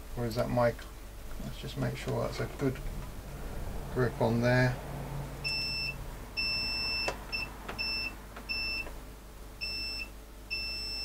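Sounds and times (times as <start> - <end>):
multimeter continuity beeps: 5.4 - 8.9, 9.6 - 11.0.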